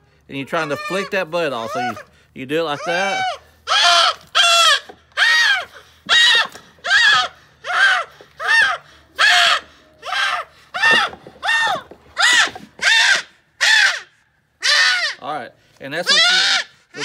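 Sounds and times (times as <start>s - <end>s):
goat screaming bleats: 0.5s - 2.1s, 2.7s - 13.2s, 16.0s - 17.0s.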